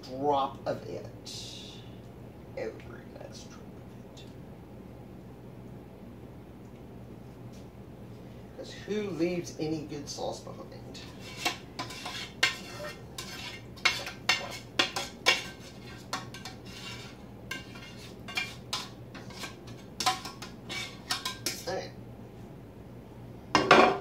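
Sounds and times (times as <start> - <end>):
utensil scraping metal pan: 11.0 - 21.7.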